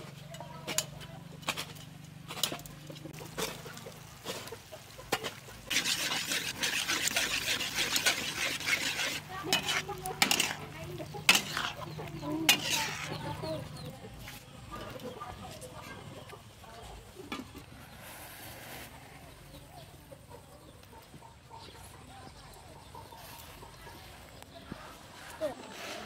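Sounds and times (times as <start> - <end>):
frying sizzle: 2.3 - 13.7
metal spatula clanking on wok: 5.1 - 13.6.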